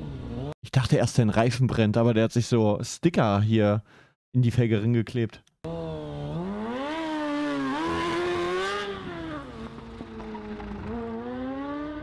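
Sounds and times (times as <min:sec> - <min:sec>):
motorcycle engine accelerating: 0:00.0 - 0:00.5, 0:05.7 - 0:12.0.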